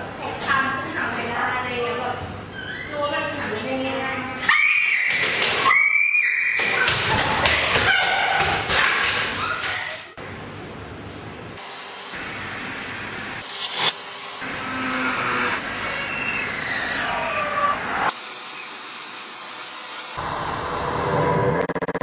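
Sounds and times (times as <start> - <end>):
women screaming in fright: 4.4 - 8.7.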